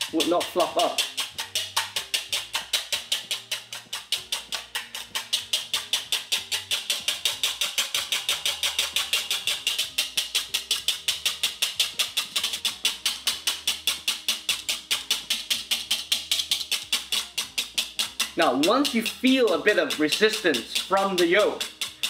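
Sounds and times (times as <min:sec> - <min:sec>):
whisk beating in ceramic bowl: 0:00.0 - 0:22.0.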